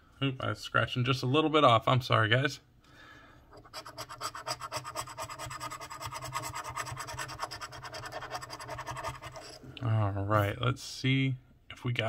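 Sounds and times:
coin scraping scratch-off ticket: 3.6 - 9.6.

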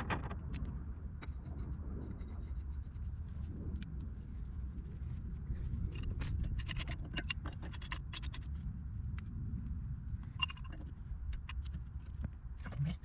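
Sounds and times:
steady low rumble: 0.0 - 13.0
pipe wrench clicks and scrapes: 0.3 - 3.2, 5.9 - 8.6, 10.2 - 12.3.

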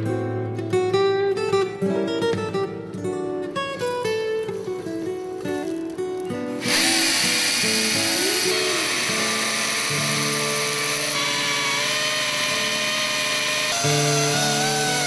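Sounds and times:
plucked guitar music: 0.0 - 11.8, 13.7 - 15.0
chainsaw cutting stone: 6.5 - 15.0.

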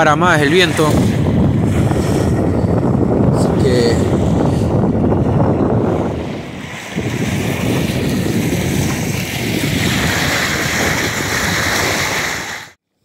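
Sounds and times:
wind buffeting microphone: 0.0 - 12.8
waves splashing on rocky shore: 6.2 - 12.8.

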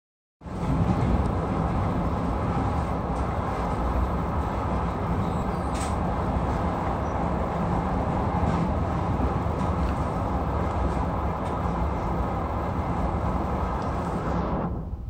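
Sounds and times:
train wheels rumbling on rails: 0.4 - 15.0.

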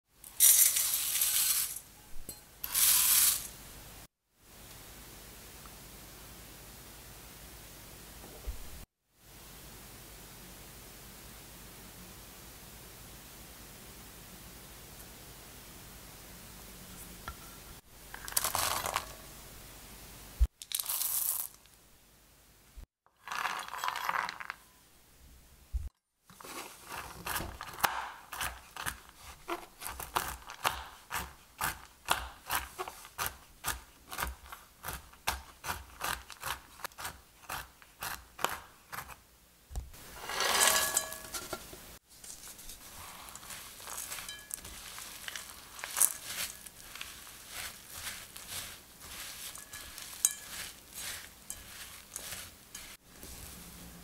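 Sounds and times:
nuts rattling into bowl: 0.4 - 1.8, 20.6 - 21.6, 23.2 - 24.6, 43.3 - 46.8
knife chopping on wooden board: 27.3 - 39.2
spatula stirring and scraping glass: 40.0 - 41.7, 42.3 - 53.5
dried fruit dropping into glass bowl: 43.4 - 46.6.

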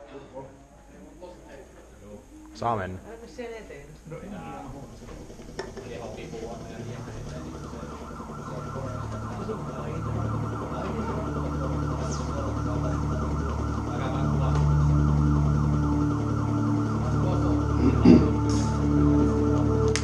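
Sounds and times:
warbling siren-like tone: 2.3 - 20.0
low synth notes: 4.0 - 20.0.

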